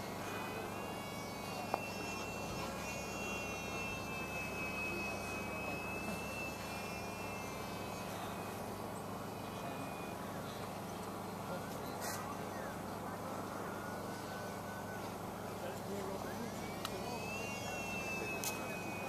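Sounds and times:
electric model airplane motor whine: 0.0s - 19.0s
sharp click: 18.4s - 18.6s.

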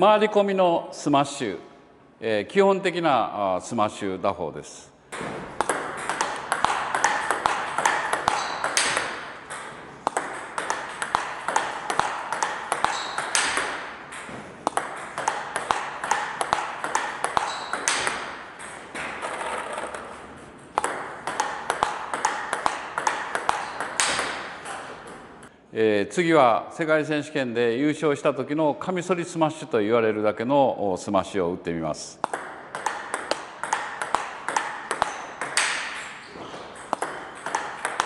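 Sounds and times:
table tennis ball hits: 5.1s - 25.5s, 32.2s - 38.0s.

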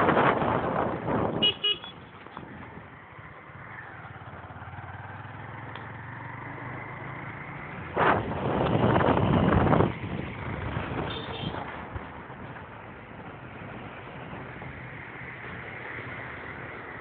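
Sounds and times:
wind rush on microphone: 0.0s - 3.4s, 7.6s - 15.7s.

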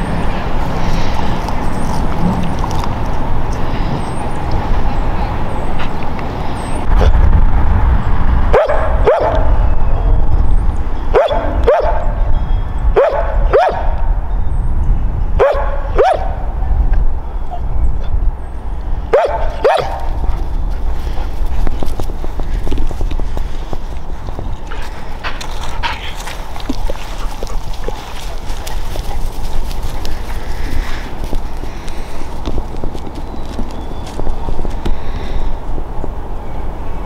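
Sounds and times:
dog barking: 8.5s - 9.6s, 11.1s - 12.2s, 13.0s - 14.0s, 15.4s - 16.4s, 19.1s - 20.2s.

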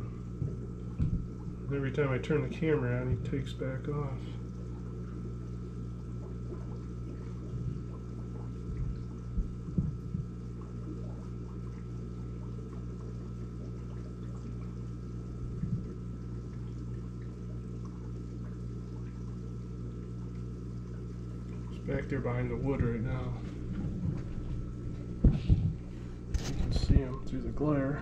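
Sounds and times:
aquarium filter humming: 0.0s - 28.0s
water trickling into tank: 0.0s - 28.0s
soft thumps: 8.7s - 10.4s, 22.7s - 27.2s.

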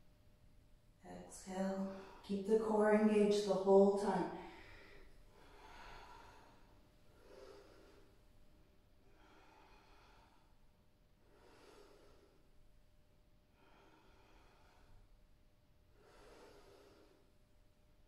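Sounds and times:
woman breathing softly: 1.8s - 2.3s, 4.3s - 8.4s, 9.0s - 12.7s, 13.5s - 17.5s.

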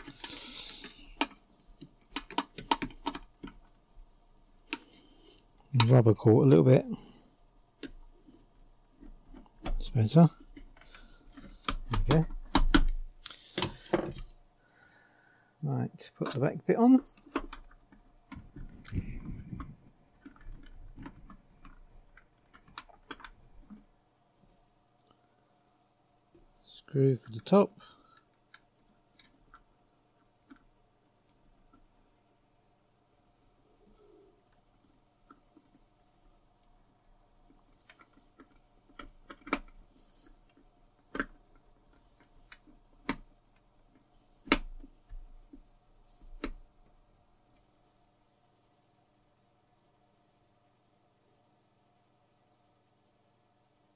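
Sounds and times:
screwdriver clicking on plastic: 0.0s - 3.6s, 37.7s - 46.6s
plastic clicks and rubbing: 0.0s - 3.8s, 9.0s - 14.4s, 17.1s - 23.9s, 28.1s - 30.7s, 37.4s - 47.7s.

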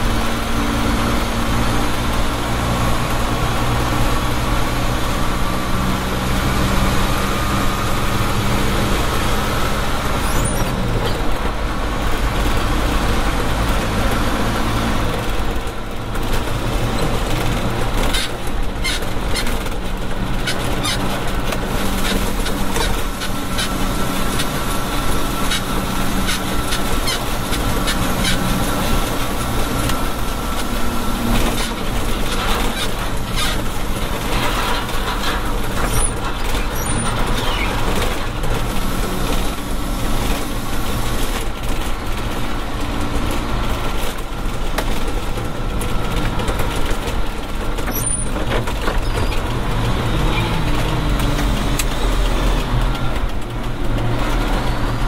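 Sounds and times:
diesel engine running: 0.0s - 55.0s
road noise: 0.0s - 55.0s
clicking rattles in cab: 15.4s - 24.6s, 31.3s - 38.8s.

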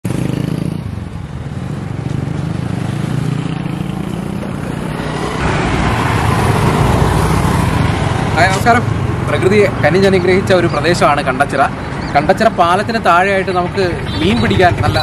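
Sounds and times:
scooters and motorcycles passing: 0.1s - 15.0s.

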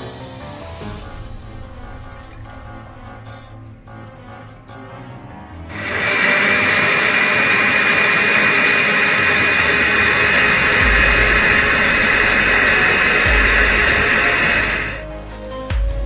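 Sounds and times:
blender whirring: 5.7s - 15.0s.

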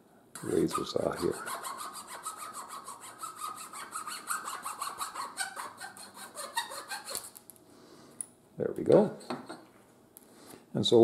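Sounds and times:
saw cutting wooden dowel: 0.4s - 7.3s.

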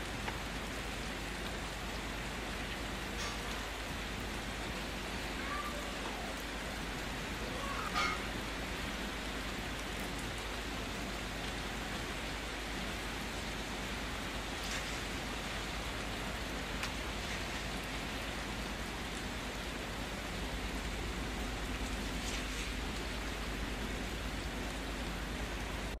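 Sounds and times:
steady hissing noise: 0.0s - 26.0s
faint crackles: 14.2s - 19.7s, 20.3s - 26.0s.

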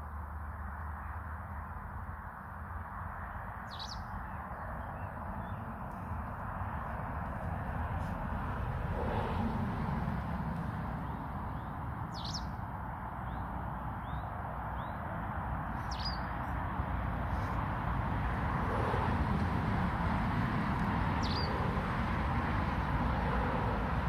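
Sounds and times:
small bird chirping: 3.7s - 5.6s, 11.6s - 12.6s, 15.8s - 16.3s, 21.2s - 21.6s.

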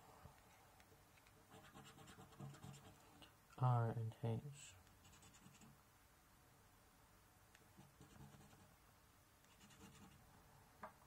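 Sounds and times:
coin scratching a scratchcard: 1.5s - 3.0s, 5.0s - 5.7s, 7.8s - 8.7s, 9.5s - 10.2s.

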